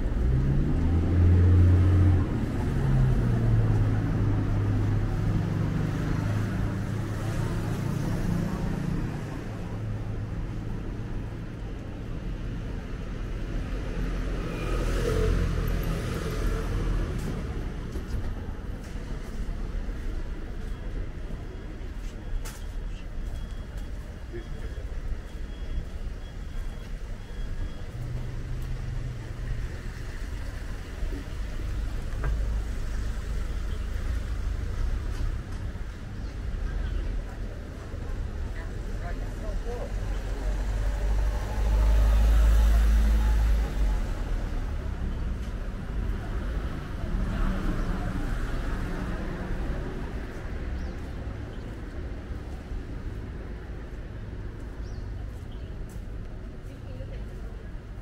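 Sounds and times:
motor vehicle rumbling: 0.0s - 58.0s
street background noise: 0.0s - 58.0s.

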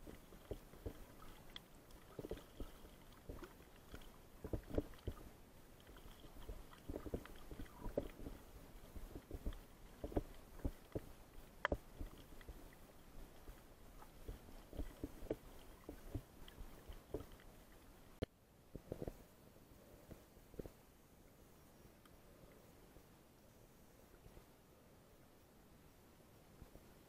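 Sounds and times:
soft underwater knocks and clicks: 0.0s - 19.2s, 20.0s - 20.8s
low hiss: 0.0s - 27.0s.

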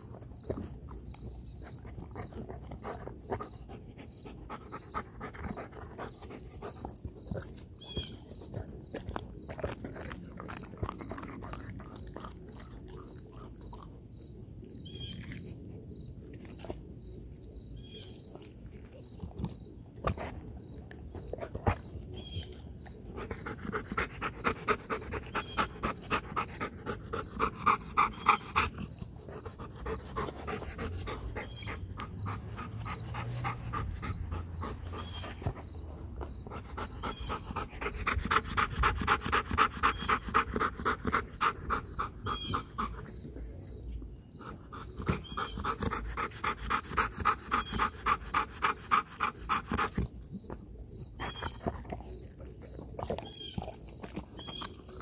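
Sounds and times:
dog panting fast: 1.5s - 7.6s, 23.1s - 43.4s, 44.4s - 50.5s.

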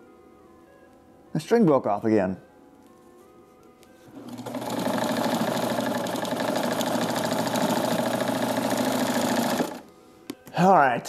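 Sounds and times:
sewing machine running: 4.2s - 9.9s.

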